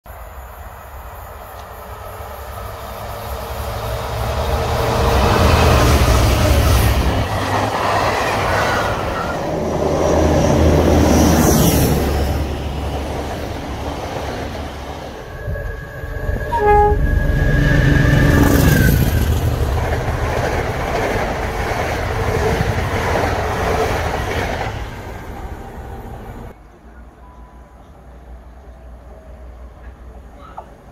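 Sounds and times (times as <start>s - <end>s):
train passing: 0.1s - 30.9s
train horn: 15.4s - 18.4s.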